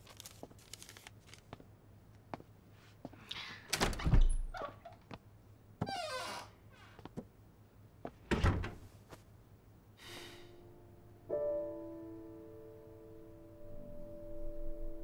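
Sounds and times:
soft piano music: 10.5 - 15.0.

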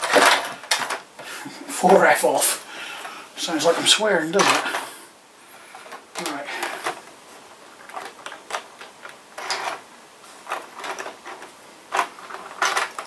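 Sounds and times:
model train clicks and clatter: 10.5 - 13.0.

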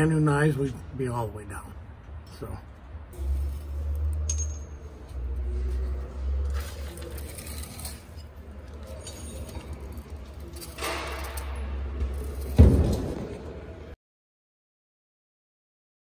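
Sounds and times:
light metallic clinks and rattles: 3.2 - 13.2.

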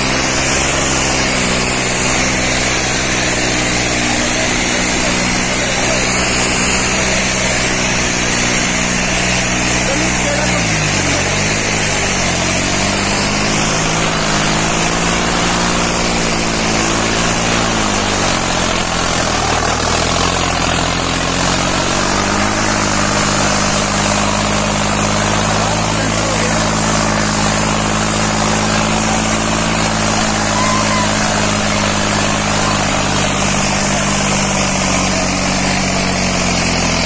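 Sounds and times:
tractor diesel engine labouring: 0.0 - 37.0.

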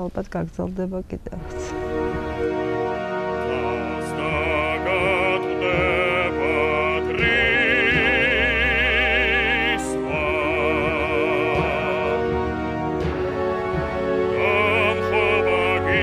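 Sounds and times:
sustained music accompaniment: 0.0 - 16.0
operatic voice singing: 3.2 - 12.8, 14.0 - 16.0.

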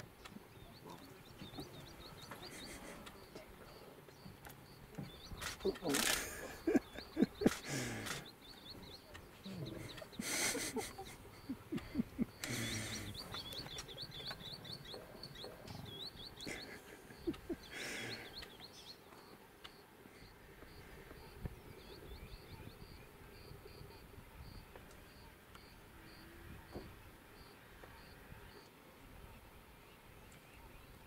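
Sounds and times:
small bird chirping: 0.0 - 28.8
lion cubs calling: 5.0 - 18.6
lion cubs noisy bursts: 5.4 - 8.3.

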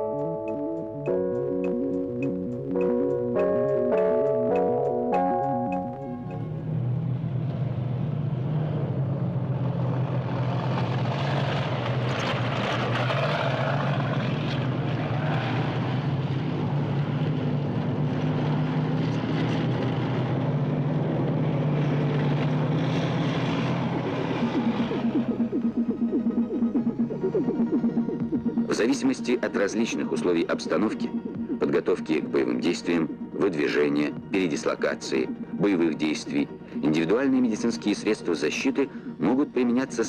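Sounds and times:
tank engine drone: 0.0 - 40.0
broad noisy rush: 7.6 - 28.8.

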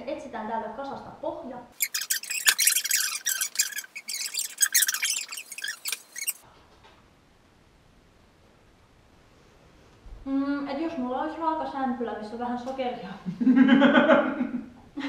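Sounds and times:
high-pitched squeaky chattering: 1.8 - 6.4.

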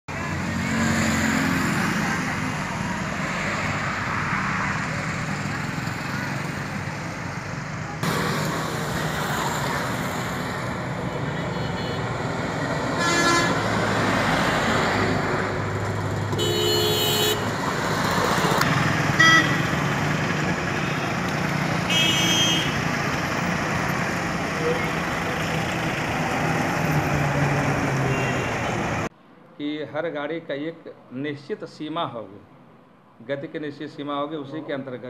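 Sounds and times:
vehicle engines running: 0.1 - 29.1
car horn honks: 13.0 - 13.6, 16.3 - 17.5, 19.2 - 19.7, 21.9 - 22.8, 28.1 - 28.9.

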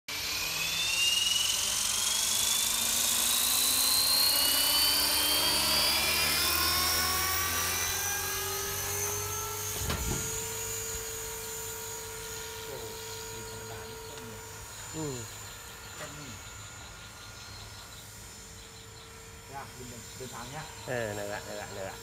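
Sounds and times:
model helicopter whine: 0.1 - 22.0
low thump: 9.8 - 10.4.

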